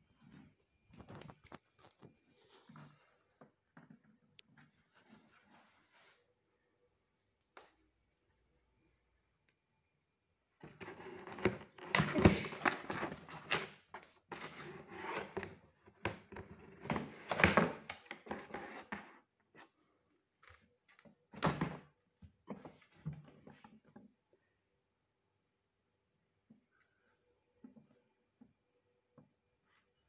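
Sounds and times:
cats scratching cardboard box: 10.6s - 17.5s.

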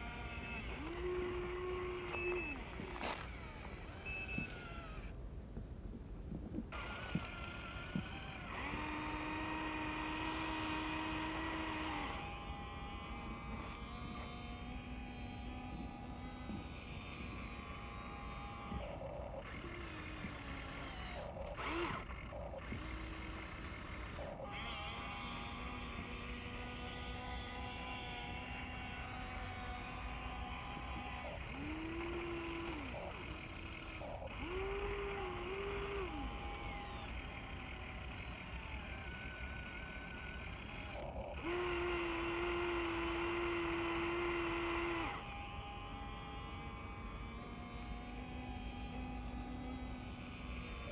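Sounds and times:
small electric motors whining: 0.0s - 5.2s, 6.7s - 50.9s.

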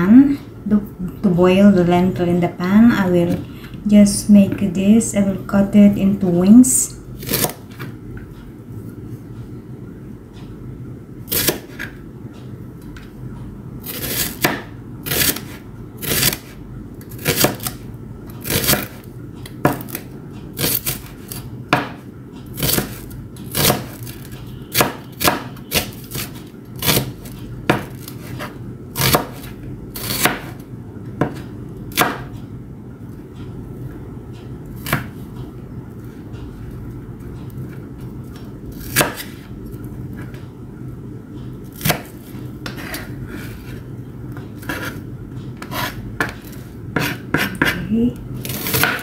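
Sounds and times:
knife chopping onion on board: 7.2s - 7.8s, 11.3s - 11.9s, 13.8s - 16.5s, 17.1s - 17.8s, 18.4s - 20.0s, 20.6s - 22.0s, 22.6s - 30.6s, 31.2s - 32.3s, 34.8s - 35.1s, 38.7s - 39.5s, 41.7s - 43.1s, 44.5s - 45.0s, 45.6s - 49.0s.

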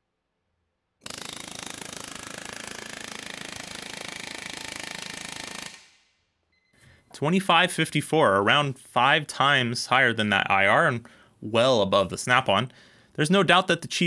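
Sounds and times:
air hammer firing rapid blows: 1.0s - 6.1s.

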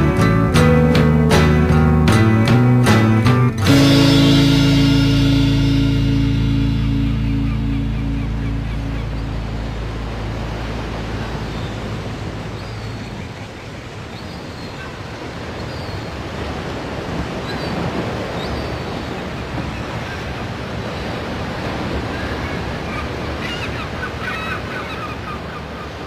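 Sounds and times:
low music notes: 0.0s - 12.6s
ocean surf washing on shore: 3.1s - 26.0s
high bird calls: 6.6s - 15.0s, 22.2s - 26.0s.

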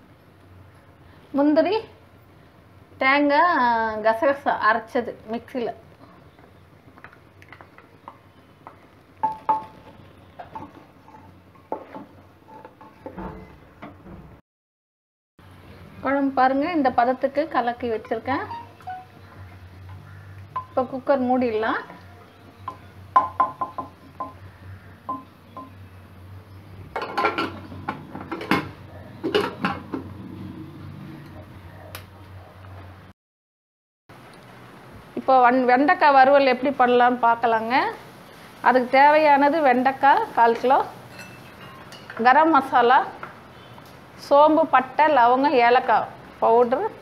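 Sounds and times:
spatula scraping and stirring in pot: 9.9s - 13.1s
ringing knocks on pressure cooker: 22.7s - 24.4s, 25.1s - 25.8s
metal lid clinks and knocks: 27.0s - 30.0s.

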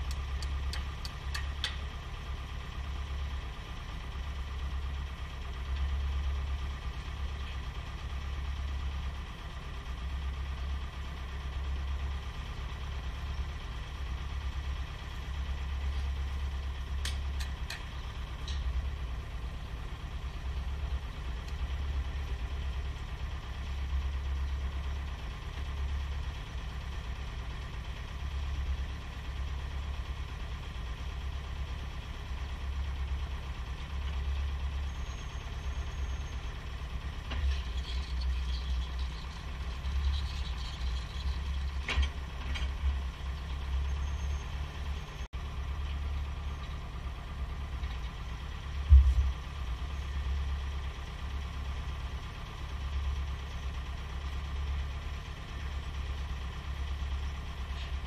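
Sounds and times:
diesel engine idling: 0.0s - 58.0s
low rumble: 48.7s - 49.6s.

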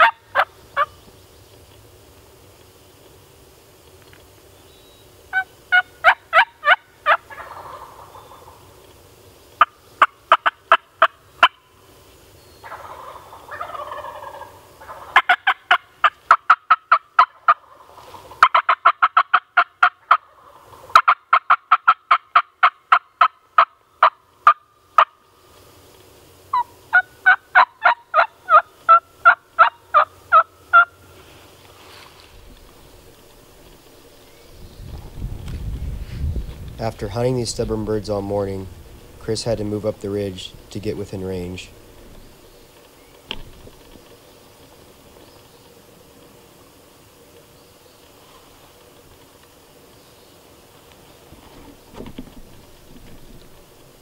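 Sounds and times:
wild turkey yelping: 0.0s - 1.0s, 5.3s - 8.7s, 9.6s - 11.6s, 12.6s - 25.2s, 26.5s - 31.0s.

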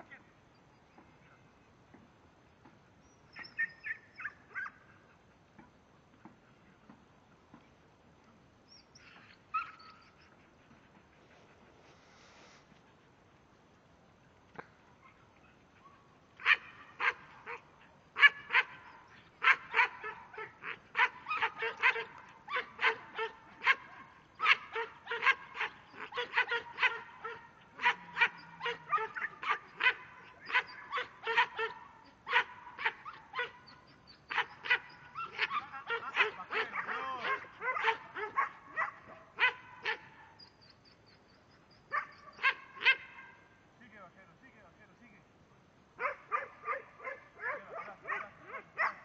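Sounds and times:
dog barking rapidly: 16.4s - 17.6s, 18.2s - 33.5s, 34.3s - 40.0s, 46.0s - 49.0s.

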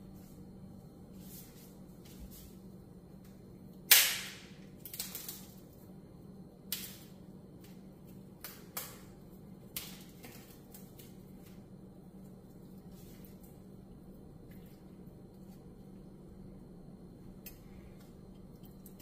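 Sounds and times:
oil crackling and popping: 3.9s - 5.8s, 6.7s - 13.7s, 17.4s - 19.0s.

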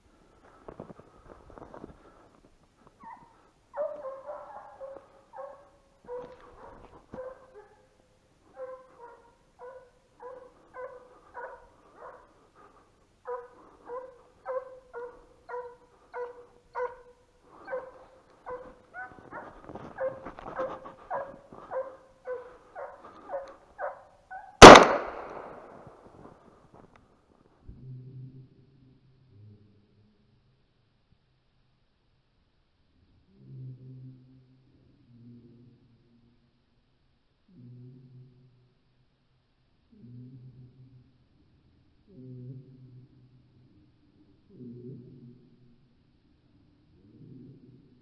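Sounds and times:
hounds baying: 3.0s - 24.6s
shotgun shot: 24.6s - 25.9s.

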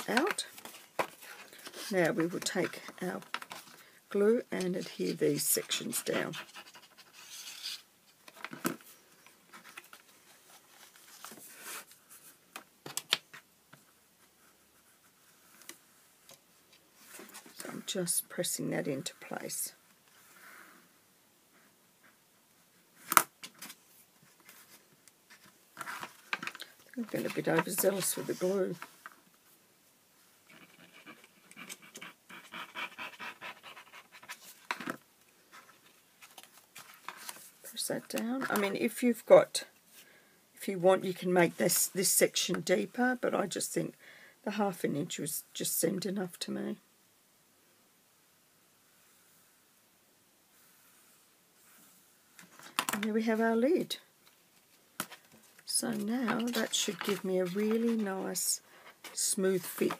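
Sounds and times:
card rustling and scraping: 0.0s - 3.8s, 4.7s - 13.4s, 23.0s - 29.2s, 34.1s - 38.8s, 54.6s - 59.9s.

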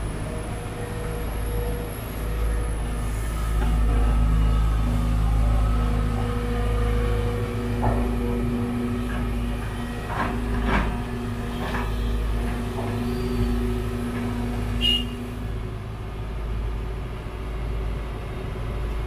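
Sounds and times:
diesel engines running: 0.0s - 19.0s.

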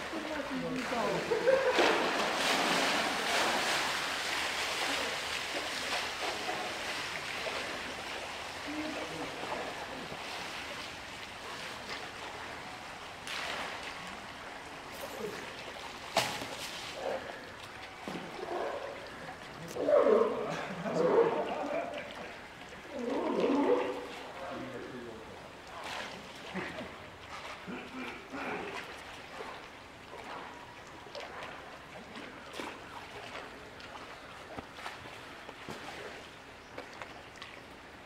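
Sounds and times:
bear splashing in water: 0.0s - 12.4s.

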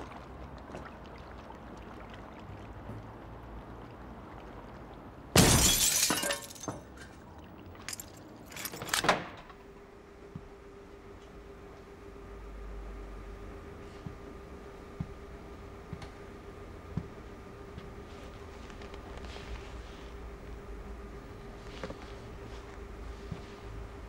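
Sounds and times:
glass shards tinkling: 5.4s - 6.7s
glass window smashing: 5.4s - 6.7s.

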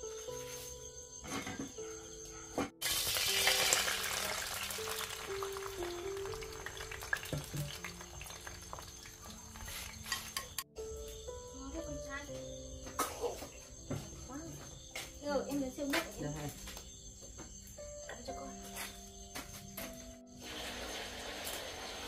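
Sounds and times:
background music: 0.0s - 22.0s
food sizzling in hot oil: 2.8s - 10.6s, 20.4s - 22.0s.

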